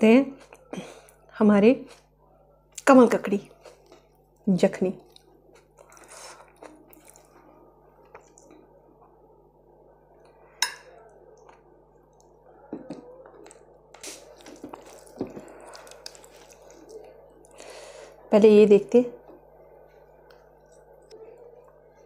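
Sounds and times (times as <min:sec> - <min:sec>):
wet squishing of rice mixed by hand: 0:13.9 - 0:17.6.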